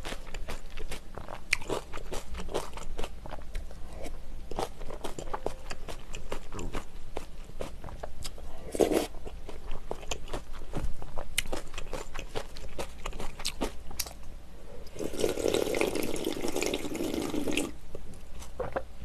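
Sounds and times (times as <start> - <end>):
chewing and mouth clicks: 4.5 - 14.2
slurping broth: 8.6 - 9.2, 14.8 - 17.7.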